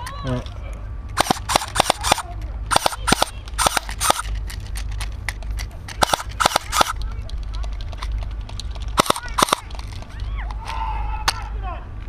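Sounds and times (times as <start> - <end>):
airsoft gun shots: 1.2 - 4.2, 6.0 - 7.0, 9.0 - 9.6.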